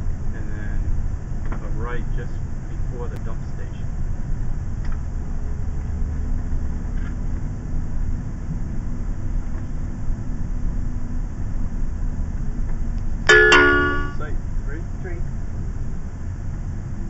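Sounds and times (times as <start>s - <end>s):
engine and road rumble: 0.0s - 17.0s
steady hum: 13.1s - 15.2s.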